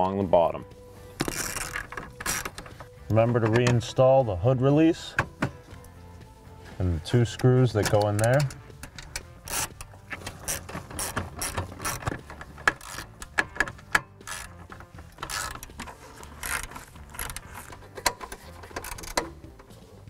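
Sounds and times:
hand ratchet clicking: 1.2s - 2.7s, 7.9s - 19.8s.

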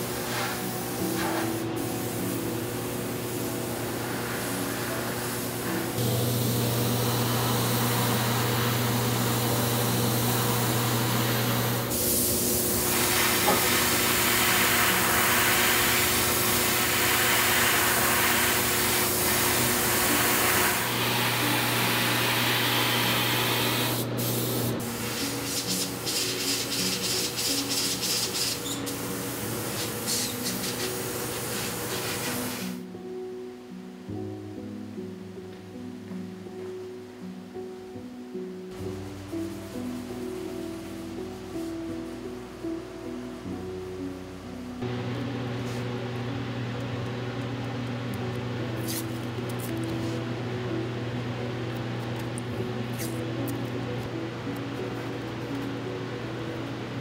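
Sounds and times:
nozzle spraying hiss: 0.1s - 32.8s.

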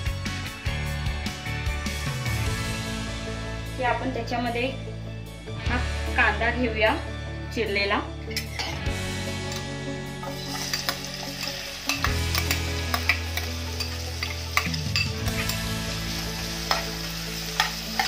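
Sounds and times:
metal ladle scraping pot: 8.3s - 8.8s
onion sizzling in hot oil: 8.5s - 18.0s.

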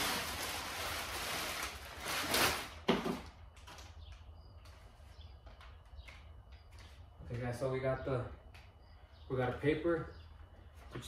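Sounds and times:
packing paper rustling: 0.0s - 3.9s.

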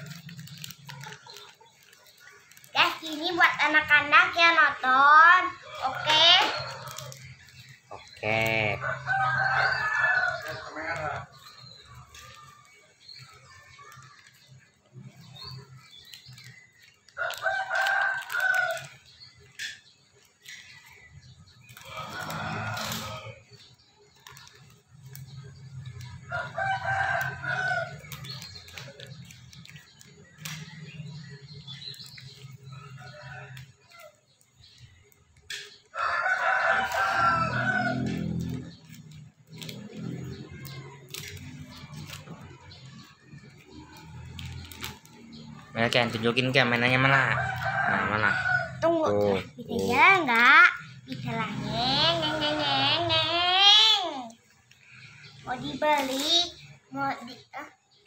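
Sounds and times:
plastic wrapper rustling: 0.0s - 5.0s, 5.7s - 35.6s, 36.7s - 46.8s
rooster crowing: 8.3s - 11.3s, 21.8s - 23.4s, 26.3s - 28.1s, 35.9s - 38.8s, 46.6s - 49.1s
plastic toy bricks clicking: 38.0s - 42.9s.

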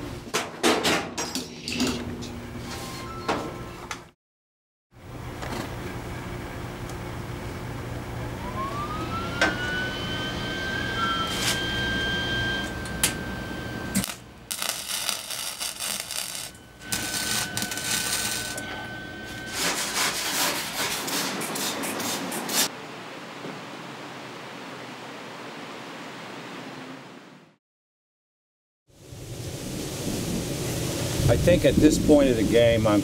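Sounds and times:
electric grinder motor whine: 8.3s - 19.6s
grinding noise in bursts: 14.1s - 18.6s.

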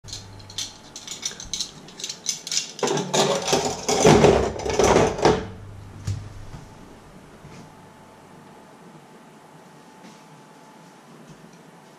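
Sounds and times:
metal cutlery clinking: 0.0s - 5.2s.

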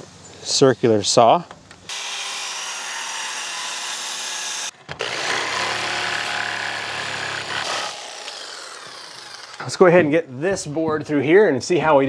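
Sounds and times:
jigsaw buzzing: 1.9s - 9.8s
circular saw cutting wood: 1.9s - 10.0s.

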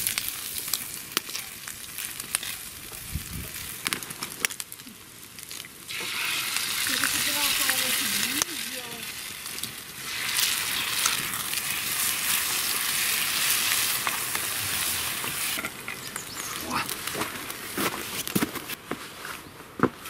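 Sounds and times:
food sizzling in a pan: 5.4s - 16.7s.

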